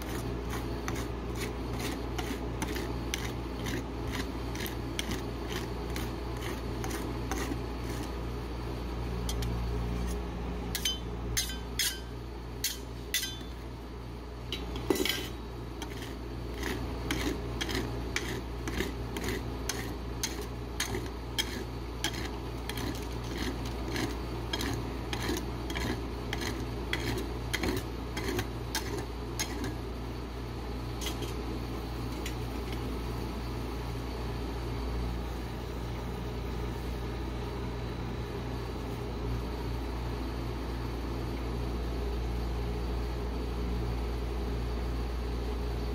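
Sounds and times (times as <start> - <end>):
metal spatula tapping and scraping: 0.0 - 8.2, 9.2 - 13.7, 14.5 - 29.8, 31.0 - 31.4, 32.1 - 32.9
steady low hum: 0.0 - 45.9.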